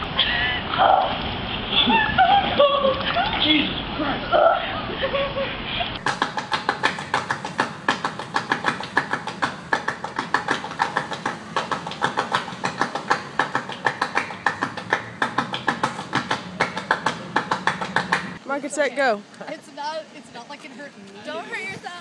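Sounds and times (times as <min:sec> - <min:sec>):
people clapping in rhythm: 0:06.0 - 0:18.4.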